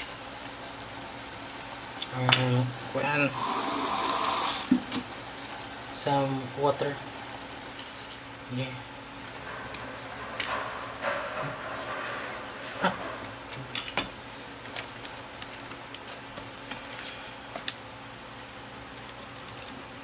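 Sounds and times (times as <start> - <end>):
water pouring into pot: 3.3 - 4.9, 7.2 - 8.4
kitchen clicks and knocks: 9.5 - 14.2.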